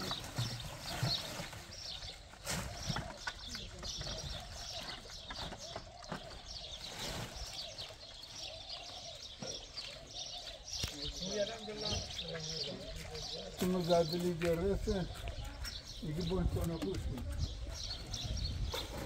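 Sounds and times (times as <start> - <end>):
small birds chirping: 0.0 - 19.0
faint voices: 7.6 - 19.0.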